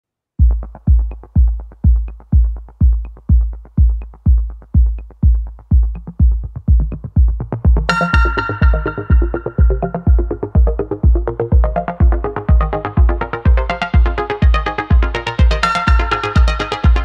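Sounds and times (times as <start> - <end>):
electronic music with bass drum: 0.4 - 17.0
synth melody: 7.8 - 17.0.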